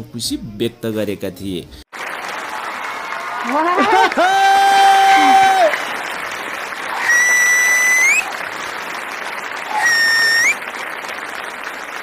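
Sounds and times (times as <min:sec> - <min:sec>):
audience applauding: 0:01.9 - 0:12.0
loud rising whistles: 0:06.9 - 0:08.3, 0:09.7 - 0:10.6.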